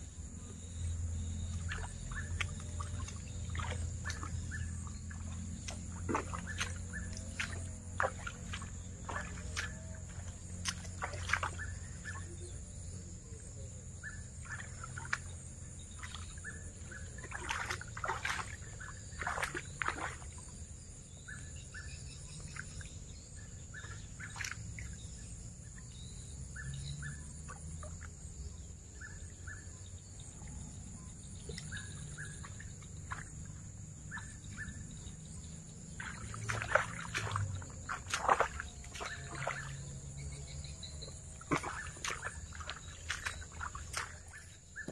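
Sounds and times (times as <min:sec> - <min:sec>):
bird chirping: 0:00.3 - 0:20.5, 0:21.1 - 0:44.9
hands splashing in water: 0:01.5 - 0:12.2, 0:14.4 - 0:20.5, 0:35.8 - 0:40.1, 0:41.1 - 0:44.9.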